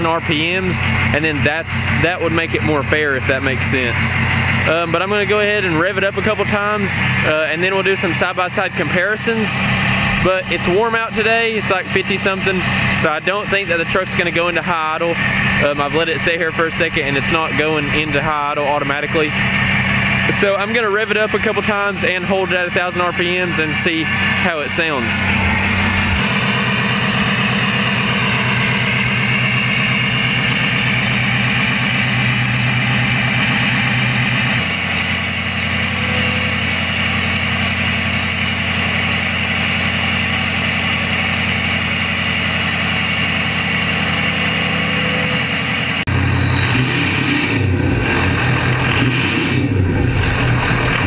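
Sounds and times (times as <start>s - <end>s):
diesel engine running and revving: 0.0s - 51.0s
turbo whistle: 34.6s - 47.5s.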